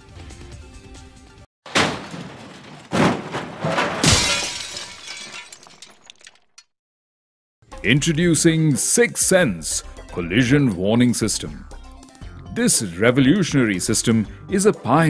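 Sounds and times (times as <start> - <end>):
vehicle crash impacts: 1.7 - 6.4
background music: 7.7 - 15.0.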